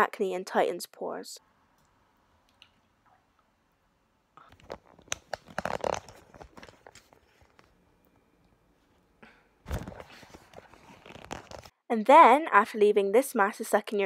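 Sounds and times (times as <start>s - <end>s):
camera handling rustles and knocks: 4.5s - 7.7s.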